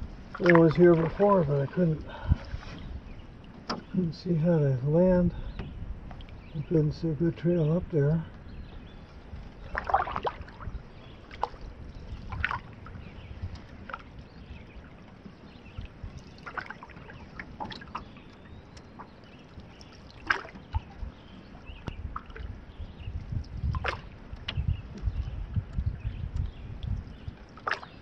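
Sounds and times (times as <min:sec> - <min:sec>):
paddle strokes in water: 0:00.0 - 0:04.3, 0:05.3 - 0:28.0
light knocks and splashes: 0:00.3 - 0:04.0, 0:08.6 - 0:22.6, 0:23.3 - 0:28.0.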